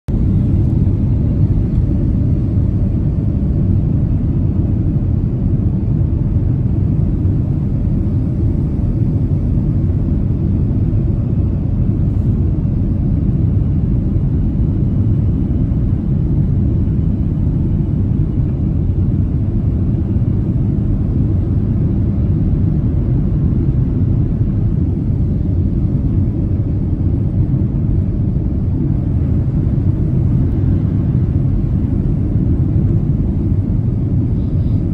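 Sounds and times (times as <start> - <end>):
airplane cabin rumble: 0.1 - 34.9.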